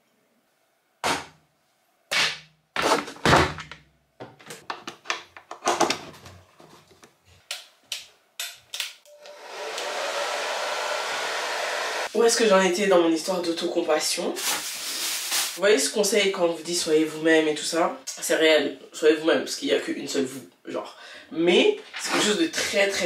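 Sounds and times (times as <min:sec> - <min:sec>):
hair dryer blowing: 0:09.1 - 0:12.1.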